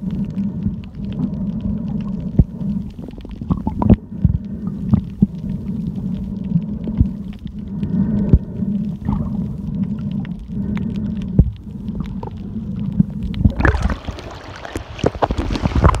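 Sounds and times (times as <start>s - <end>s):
steady low hum: 0.0s - 14.6s
splashing water: 13.4s - 16.0s.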